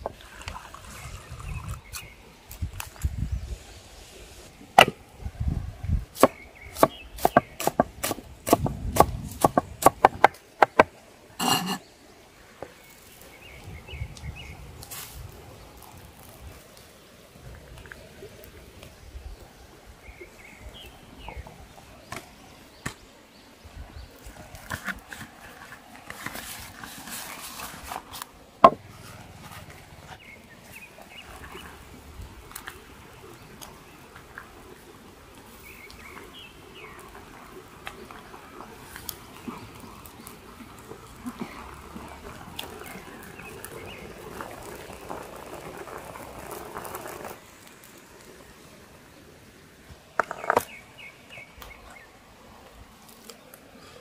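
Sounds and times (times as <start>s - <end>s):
soup boiling with bubbling pops: 30.1s - 49.2s.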